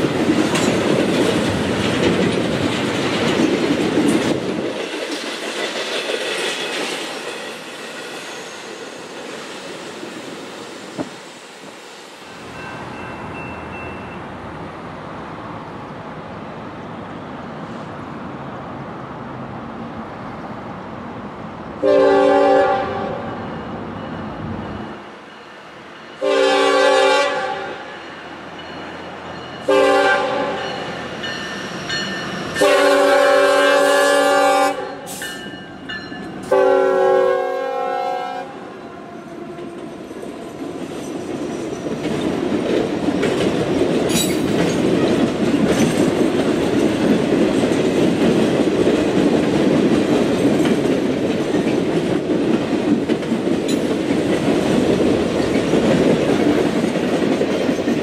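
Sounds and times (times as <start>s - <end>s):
train wheels on rails: 0.0s - 58.0s
locomotive air horn blasts: 21.8s - 23.3s, 26.2s - 27.8s, 29.7s - 30.6s, 32.6s - 35.2s, 36.5s - 38.7s.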